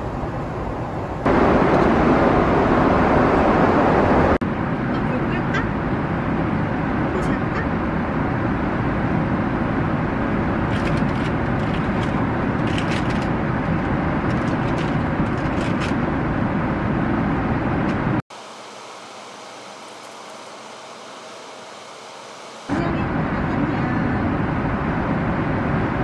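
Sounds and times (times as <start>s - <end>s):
airliner cabin engine rush: 0.0s - 26.0s
toys clicking and rustling: 10.7s - 13.4s, 14.3s - 16.0s.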